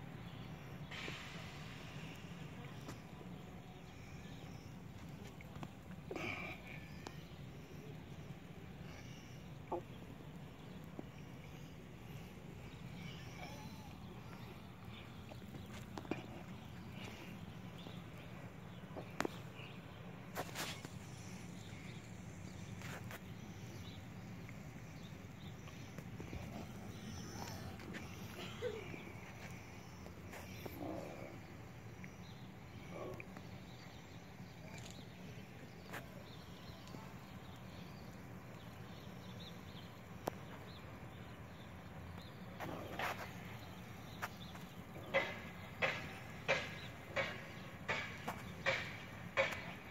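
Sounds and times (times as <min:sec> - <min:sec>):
faint high chirps: 0:00.2 - 0:31.3
crackling rustle: 0:14.0 - 0:31.6.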